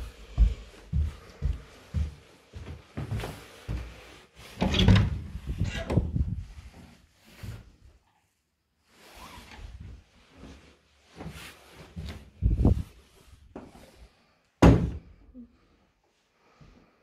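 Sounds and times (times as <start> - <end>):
wooden door thumps and knocks: 4.6 - 6.0, 14.6 - 15.1.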